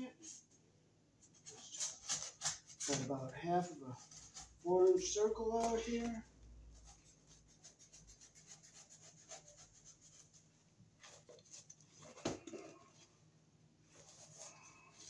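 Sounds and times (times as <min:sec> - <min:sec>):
knife scratching ceiling tile: 0:01.2 - 0:12.6.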